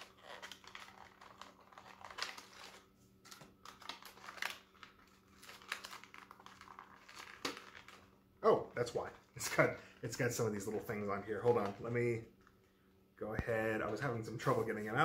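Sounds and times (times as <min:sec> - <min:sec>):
plastic rustling and clicks: 0:00.0 - 0:08.1.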